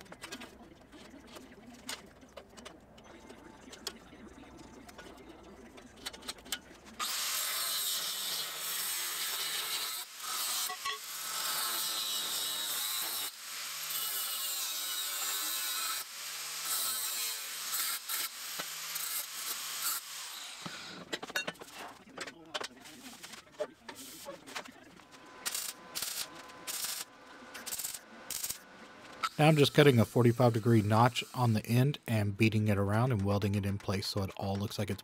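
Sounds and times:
angle grinder on steel: 0:07.0 - 0:21.0.

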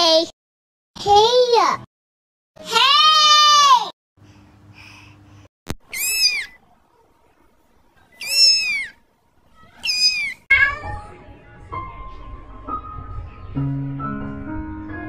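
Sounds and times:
kitten mewing: 0:05.9 - 0:06.6, 0:08.2 - 0:09.0, 0:09.7 - 0:10.9.

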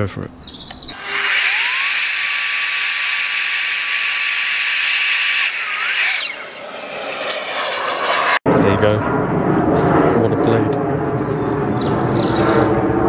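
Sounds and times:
mitre saw blade whining: 0:00.9 - 0:08.4
saw cutting plastic hiss: 0:01.0 - 0:06.7.

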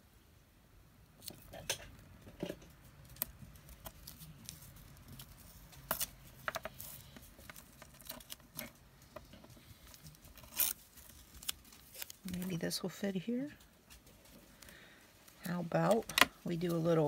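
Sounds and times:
tape and paper clicks and rustling: 0:03.0 - 0:12.7.

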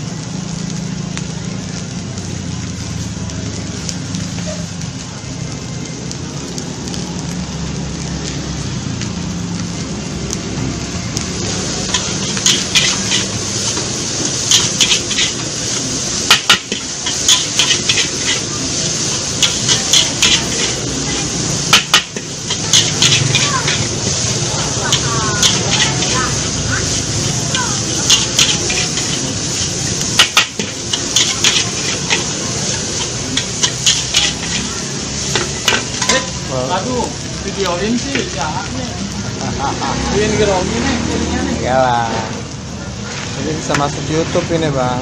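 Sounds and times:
frying hiss: 0:00.0 - 0:45.0
metal spatula clanking on a wok: 0:11.9 - 0:13.4, 0:14.4 - 0:15.4, 0:16.2 - 0:18.5, 0:19.3 - 0:20.8, 0:21.6 - 0:23.9, 0:24.9 - 0:26.2, 0:27.9 - 0:36.4.

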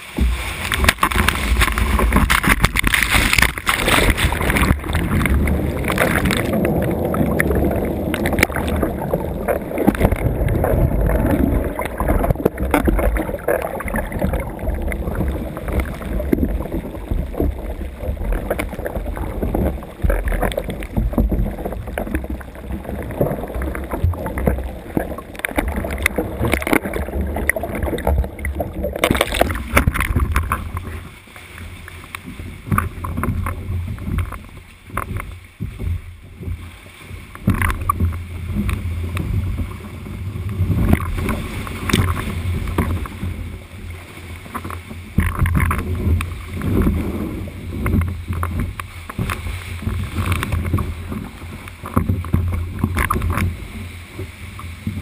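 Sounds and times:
deep rumble: 0:00.0 - 0:31.2
sea swell surging and splashing: 0:00.0 - 0:55.0.

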